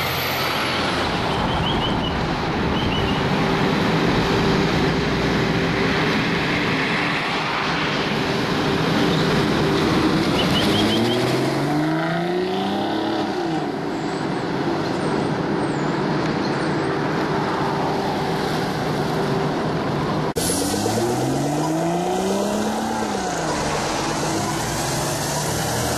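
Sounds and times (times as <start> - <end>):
road noise: 0.0 - 25.9
car engine accelerating: 20.3 - 25.9.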